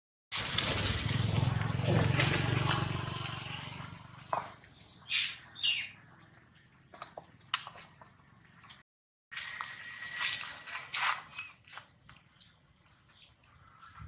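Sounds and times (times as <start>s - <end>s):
dry leaves crackling underfoot: 0.4s - 3.4s, 9.4s - 13.8s
baby monkey squealing: 5.0s - 6.0s.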